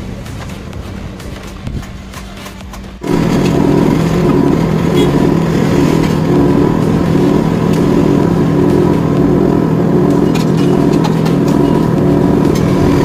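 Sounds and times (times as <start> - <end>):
machine motor droning: 3.0 - 13.0.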